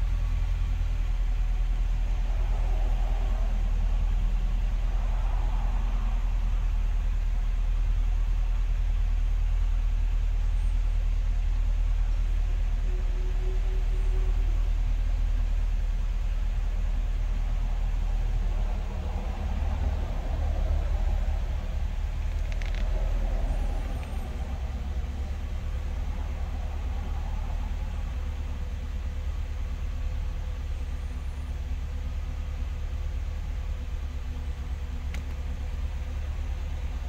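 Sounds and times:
car engine idling: 0.0 - 37.0
faint clicks: 22.2 - 24.4, 35.0 - 35.5.

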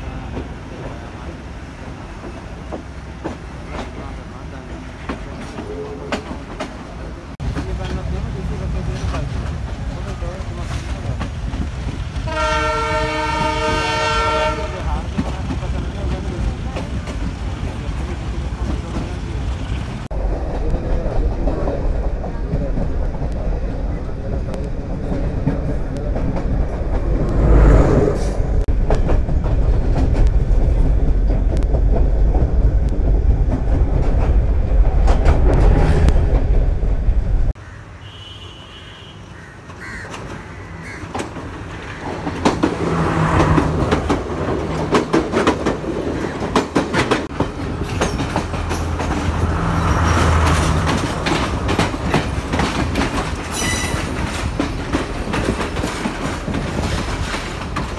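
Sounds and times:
heavy train rumble: 0.0 - 37.8, 39.6 - 57.9
train wheels clattering over rail joints: 40.0 - 57.9.

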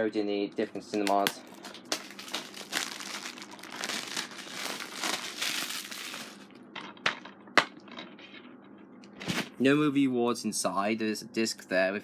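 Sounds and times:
plastic wrapping crinkling: 1.1 - 6.5.

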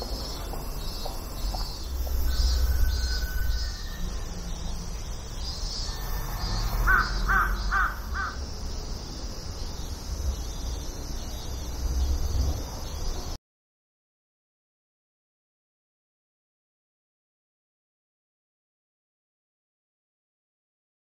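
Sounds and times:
crow cawing: 6.8 - 8.4.

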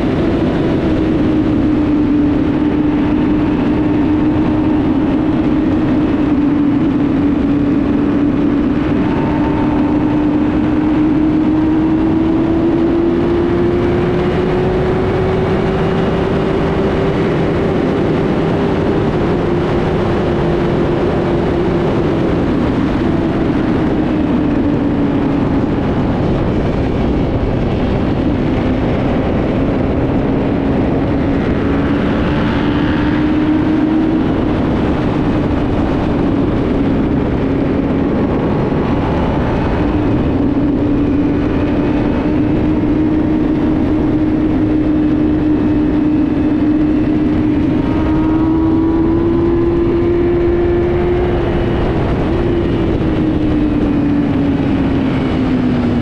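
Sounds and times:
engine droning: 0.0 - 56.0.

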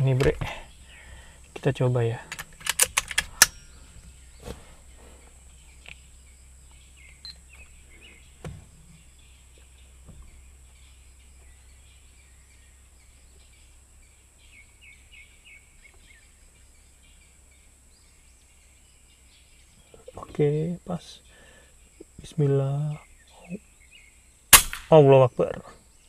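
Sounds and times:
birds chirping: 0.0 - 26.0
low steady hum: 0.0 - 26.0
rifle handling knocks and clicks: 0.1 - 0.6, 2.2 - 4.6.

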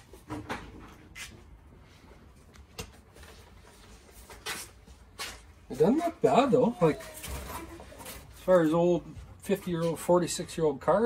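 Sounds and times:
handling rustles and scrapes: 6.7 - 8.8.

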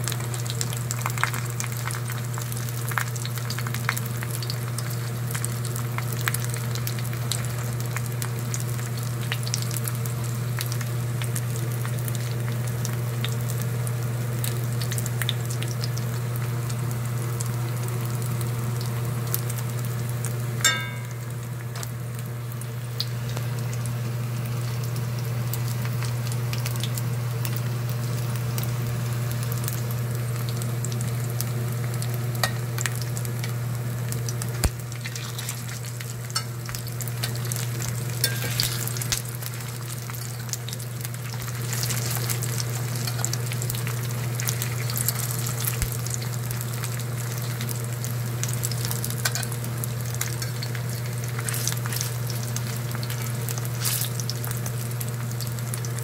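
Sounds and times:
meat sizzling in oil: 0.0 - 56.0
steady low hum: 20.4 - 23.8
metal tongs clinking on pan: 20.6 - 21.4, 38.2 - 39.2, 49.2 - 49.5.

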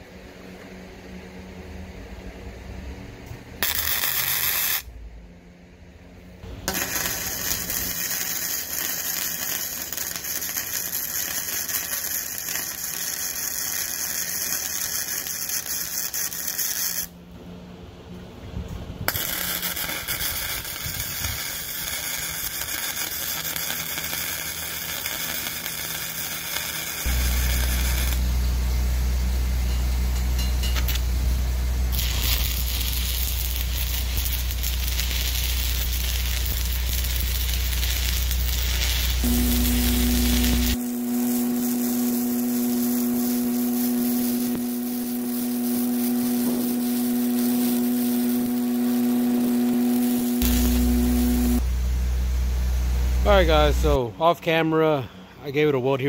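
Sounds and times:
steady low hum: 0.0 - 16.4, 17.1 - 55.8
welder crackling hiss: 3.6 - 4.8, 6.5 - 17.1, 19.1 - 29.0, 30.2 - 51.7.

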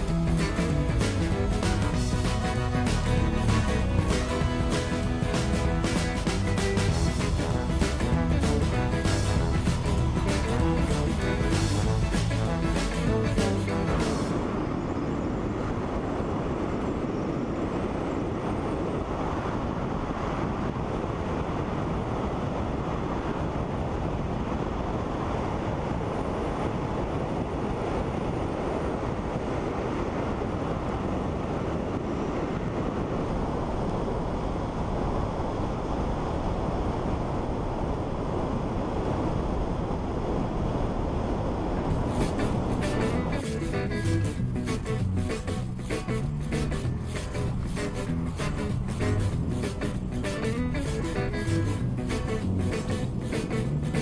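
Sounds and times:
music: 0.0 - 14.4, 41.9 - 54.0
car engine and tyre noise: 0.0 - 54.0
wind on microphone: 0.0 - 54.0.

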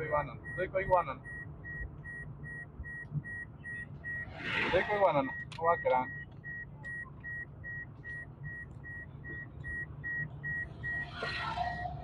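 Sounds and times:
car engine rumble: 0.0 - 12.0
road noise: 0.0 - 12.0
high electronic beep: 0.4 - 12.0.

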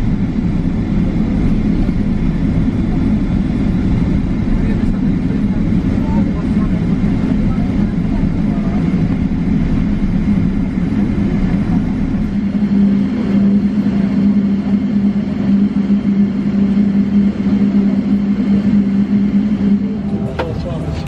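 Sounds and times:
jet engines idling drone: 0.0 - 21.0
cabin rushing hum: 8.5 - 21.0.

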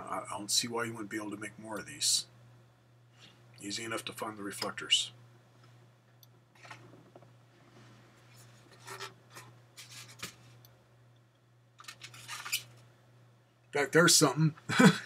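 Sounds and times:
steady low hum: 0.0 - 15.0
items rustling on a tabletop: 6.6 - 10.6, 11.8 - 12.9.

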